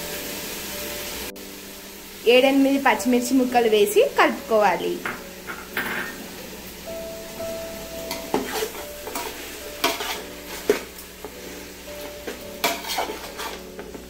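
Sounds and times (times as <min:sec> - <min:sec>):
food sizzling: 0:00.0 - 0:14.0
spatula scraping a metal pot: 0:08.1 - 0:10.9, 0:12.0 - 0:14.0.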